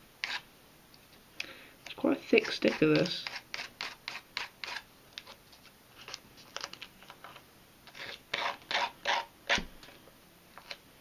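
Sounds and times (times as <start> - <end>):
hand file scraping wood: 2.4 - 5.4, 7.9 - 9.7.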